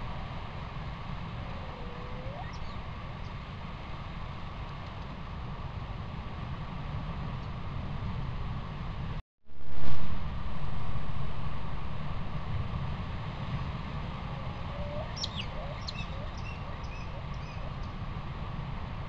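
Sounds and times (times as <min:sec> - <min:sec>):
low rumble and hiss: 0:00.0 - 0:19.0
faint bird-like chirps: 0:01.4 - 0:03.4, 0:14.6 - 0:17.9.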